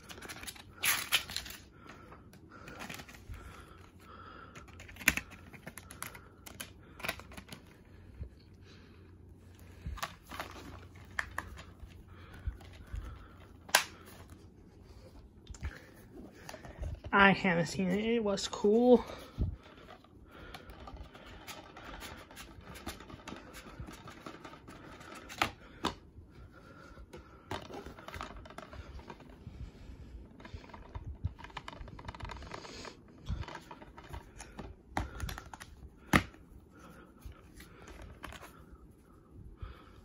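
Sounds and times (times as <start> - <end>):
plastic case rustling and clicking: 2.6 - 7.8, 9.9 - 14.4, 19.7 - 26.0, 27.1 - 29.4, 30.3 - 36.4
plastic case snapping open: 13.6 - 14.0.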